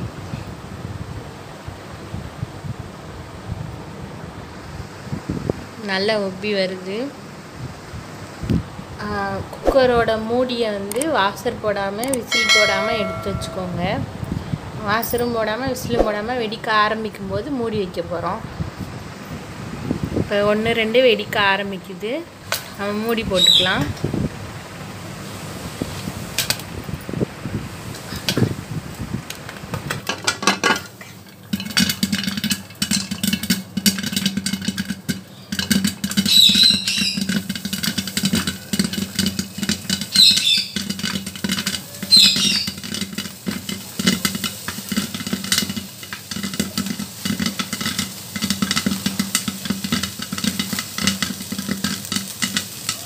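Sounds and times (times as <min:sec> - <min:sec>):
popcorn popping in a pot: 0:09.7 - 0:14.0, 0:27.9 - 0:53.0.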